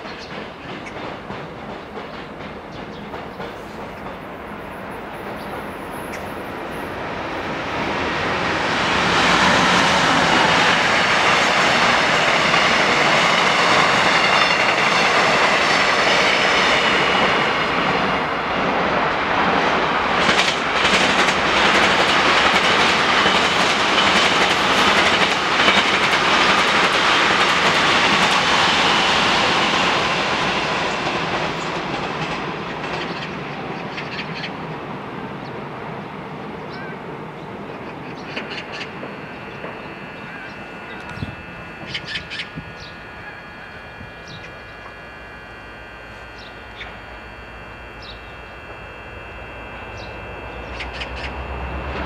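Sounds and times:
wheels clacking over rail joints: 0.0s - 6.5s, 30.9s - 34.5s
train wheels rumbling on rail: 0.0s - 52.0s
high whine: 4.6s - 52.0s.

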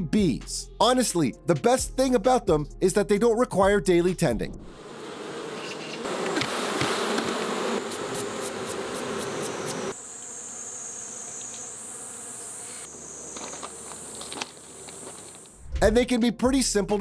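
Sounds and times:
honeybees buzzing: 4.7s - 15.6s.

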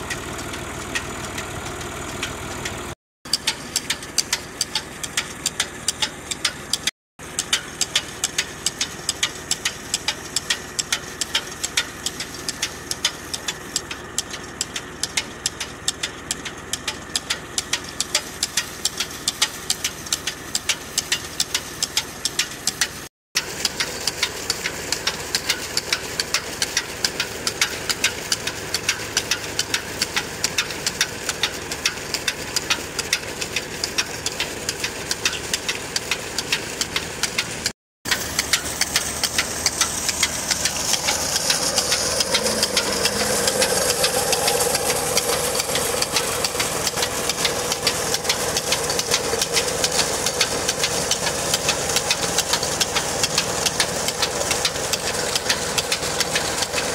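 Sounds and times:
tractor diesel engine running: 0.0s - 56.9s
regular clicking: 3.3s - 56.9s.

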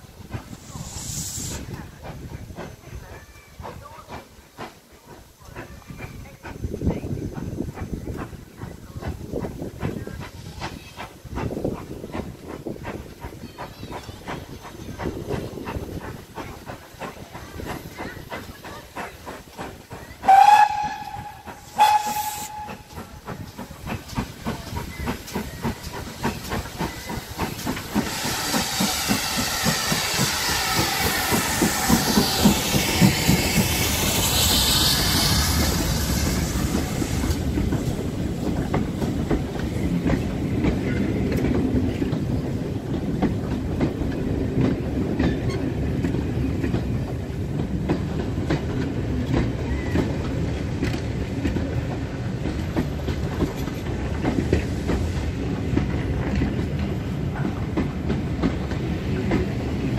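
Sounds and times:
steam locomotive hissing and chuffing: 0.0s - 59.9s
coaches clacking over rail joints: 1.5s - 59.9s
steam whistle blasts: 20.2s - 22.9s.

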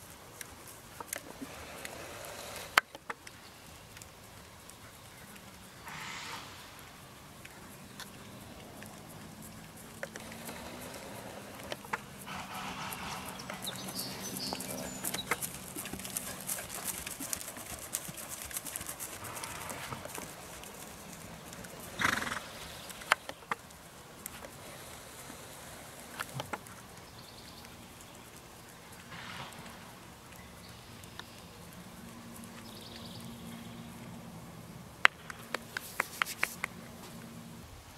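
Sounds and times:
horse hoofbeats on grass: 6.9s - 34.4s.

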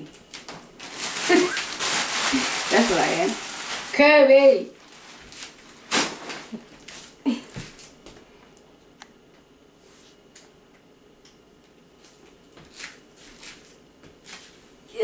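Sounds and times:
packets rustling: 0.3s - 7.1s.

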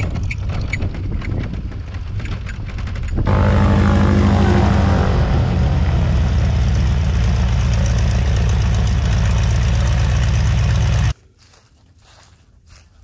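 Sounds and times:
radial engine idling: 3.3s - 11.1s.

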